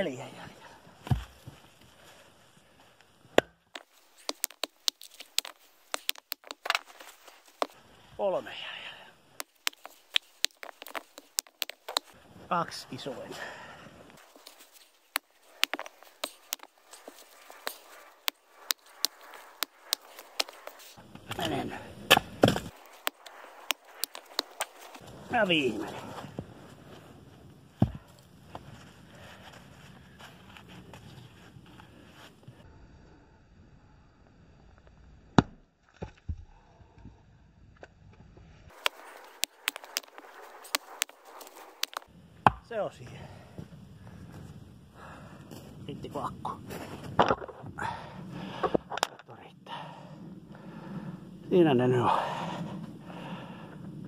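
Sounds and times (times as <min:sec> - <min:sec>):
sharp clicks and knocks: 0:03.4 - 0:06.9, 0:09.4 - 0:12.1, 0:38.7 - 0:42.1
wood knocking: 0:03.8 - 0:06.8.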